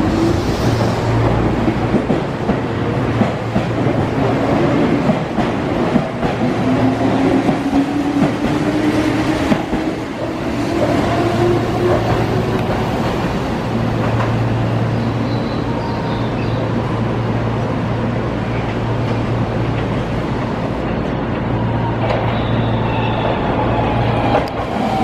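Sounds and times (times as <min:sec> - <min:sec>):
approaching train rumble and hum: 0:00.0 - 0:25.0
train running along platform: 0:00.0 - 0:25.0.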